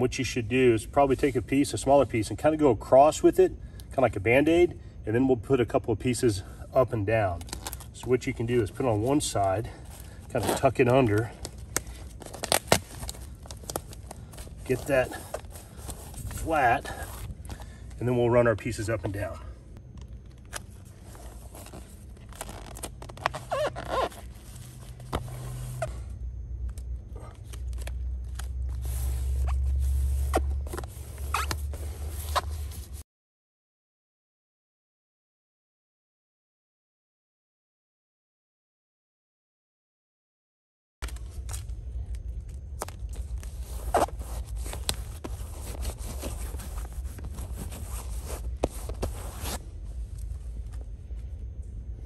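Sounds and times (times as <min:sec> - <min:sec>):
plastic tape crinkling and rustling: 0:07.2 - 0:17.6, 0:19.9 - 0:25.8, 0:41.0 - 0:50.8
sharp crackles: 0:10.1 - 0:17.1.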